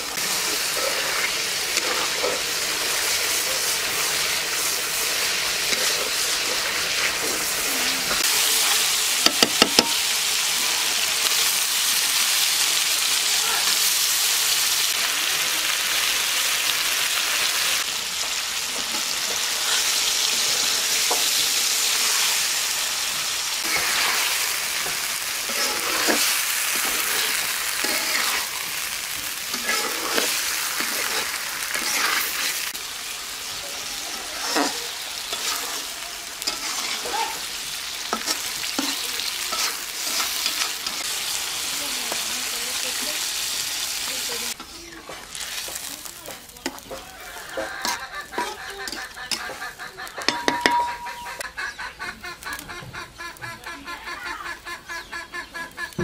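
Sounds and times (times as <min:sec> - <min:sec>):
fish sizzling in oil: 0:00.0 - 0:51.5
spatula scraping a pot: 0:00.2 - 0:08.8, 0:23.6 - 0:28.6, 0:29.4 - 0:32.7, 0:33.9 - 0:41.1, 0:46.6 - 0:51.2
chickens clucking: 0:46.0 - 0:56.0.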